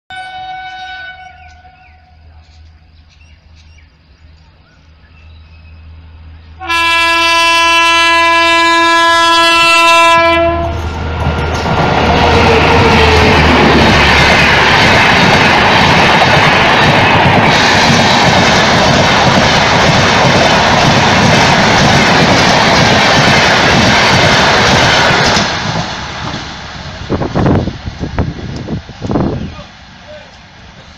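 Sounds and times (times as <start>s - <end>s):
train horn blast: 0.1s - 2.4s, 6.6s - 10.8s
train rumbling past: 0.1s - 30.9s.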